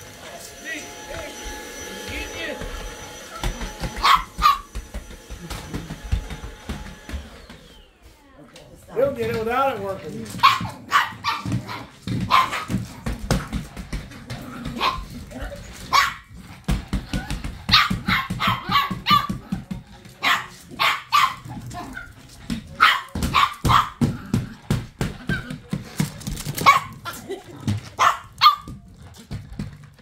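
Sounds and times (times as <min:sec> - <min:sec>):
stick vacuum running: 0:00.0 - 0:08.2
small dog barking: 0:04.0 - 0:04.7, 0:10.4 - 0:12.7, 0:15.9 - 0:16.3, 0:17.7 - 0:19.3, 0:20.2 - 0:22.1, 0:22.8 - 0:24.0, 0:26.6 - 0:27.0, 0:28.0 - 0:28.7.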